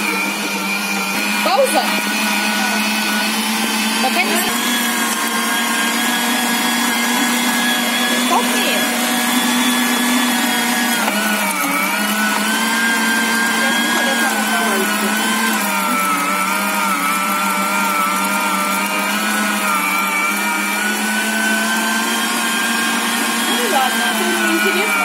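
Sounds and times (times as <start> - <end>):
electric meat grinder motor humming: 0.0 - 25.0.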